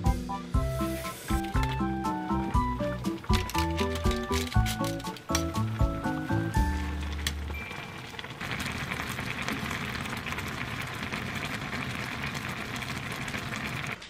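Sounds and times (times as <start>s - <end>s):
background music: 0.0s - 7.7s
broth bubbling in a pot: 5.2s - 14.0s.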